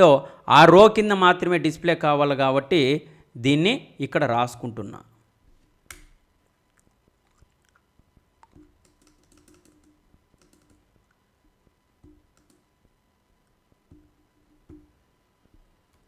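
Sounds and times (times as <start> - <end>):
computer keyboard keystrokes: 8.4 - 10.9, 12.0 - 12.6.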